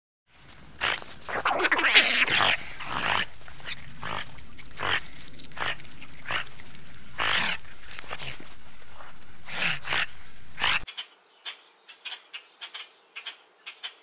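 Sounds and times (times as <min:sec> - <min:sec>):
otters making short calls: 0:00.8 - 0:11.1.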